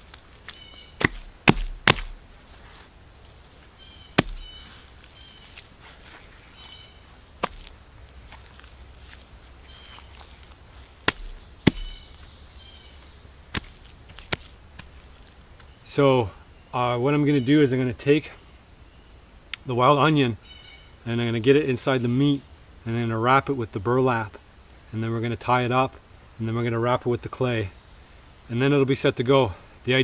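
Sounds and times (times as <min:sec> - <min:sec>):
wet clay slaps: 0:01.0 - 0:02.3, 0:04.2 - 0:04.5, 0:07.4 - 0:09.3, 0:09.9 - 0:12.3, 0:13.5 - 0:15.0.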